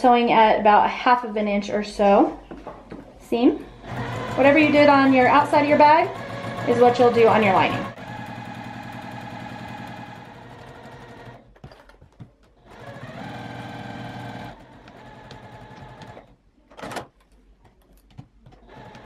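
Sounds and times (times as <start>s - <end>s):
sewing machine stitching: 3.8s - 17.1s, 18.5s - 19.0s.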